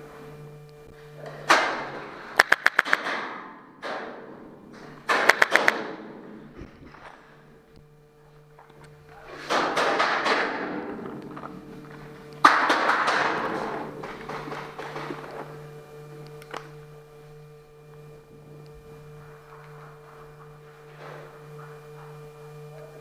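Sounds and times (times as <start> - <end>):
rapid paintball fire: 1.5 - 4.3, 5.0 - 6.1, 9.4 - 11.0, 12.4 - 15.3.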